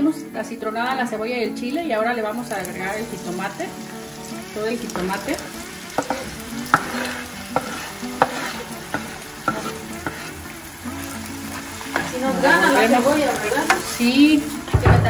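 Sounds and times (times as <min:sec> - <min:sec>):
vegetables sizzling in hot oil: 0:00.3 - 0:15.0
spoon knocking against pan: 0:04.9 - 0:10.3.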